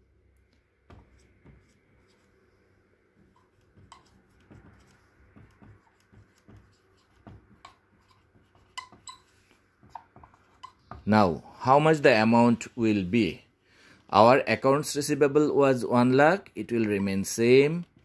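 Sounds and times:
marker writing on whiteboard: 0.7s - 11.1s.

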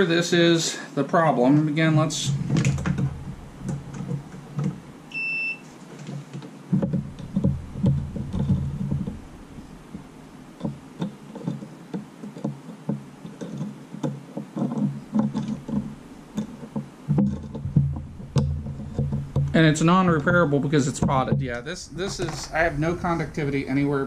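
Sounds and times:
test probes tapping and rubbing: 1.8s - 5.0s, 6.0s - 23.9s
multimeter beep: 5.1s - 5.6s.

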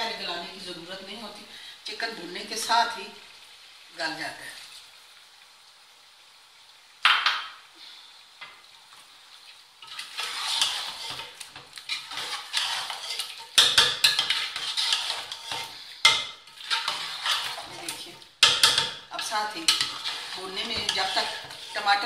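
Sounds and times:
food sizzling: 0.0s - 22.0s
metal ladle scraping a pot: 9.8s - 22.0s.

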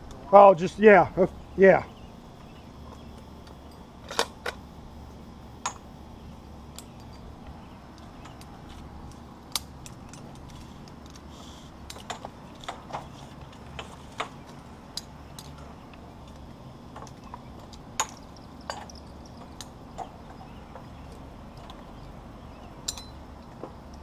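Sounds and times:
low steady hum: 0.0s - 24.0s
metal rigging gear clinking: 6.8s - 24.0s.

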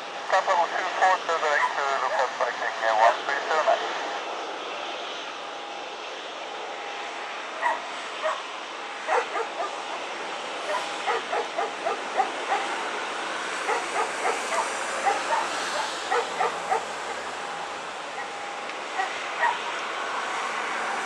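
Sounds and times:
steady rushing noise: 0.0s - 21.0s
dog barking and yipping: 7.6s - 8.4s, 9.1s - 10.0s, 10.6s - 12.8s, 13.6s - 17.4s, 19.0s - 19.7s.

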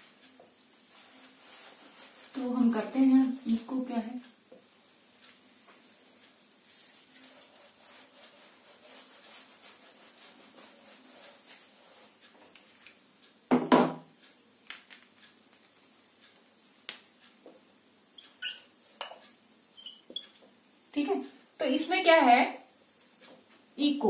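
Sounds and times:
duster rubbing on whiteboard: 1.0s - 2.7s, 5.7s - 12.5s.

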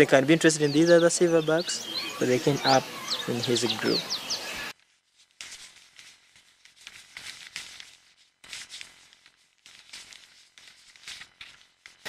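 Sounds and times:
faint rustling and crackling: 4.7s - 12.0s.

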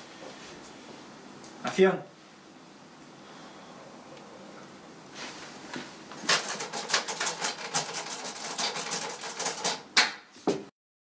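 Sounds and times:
typewriter key strikes: 6.3s - 9.8s.

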